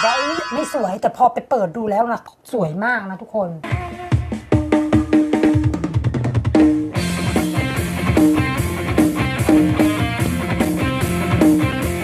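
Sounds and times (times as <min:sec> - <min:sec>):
song from portable speaker: 0:00.0 - 0:00.8.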